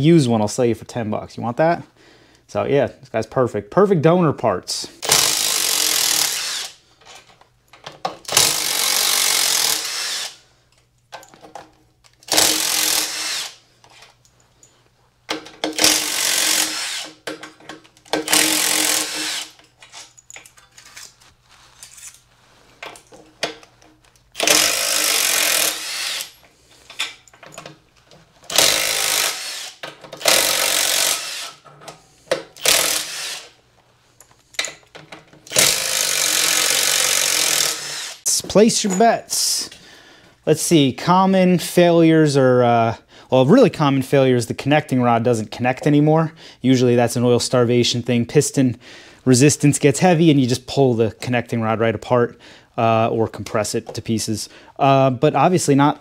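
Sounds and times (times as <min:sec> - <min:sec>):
cordless power driver running: 0:24.4 - 0:26.2, 0:28.5 - 0:31.5, 0:35.5 - 0:38.2.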